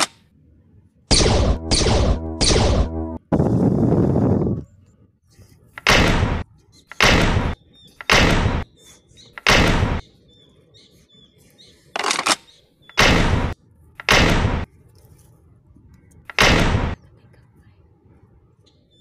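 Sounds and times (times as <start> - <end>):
gunshots: 1.1 - 3.2, 5.8 - 6.4, 7.0 - 8.7, 9.4 - 10.0, 13.0 - 14.7, 16.3 - 17.0.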